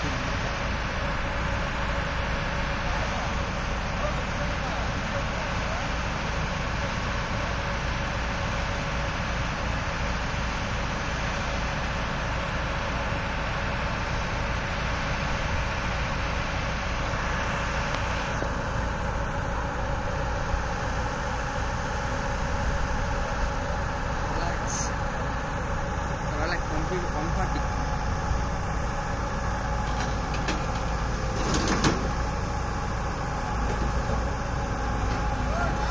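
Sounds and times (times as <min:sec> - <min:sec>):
backhoe loader running: 0:00.0 - 0:35.9
excavator diesel engine: 0:00.0 - 0:35.9.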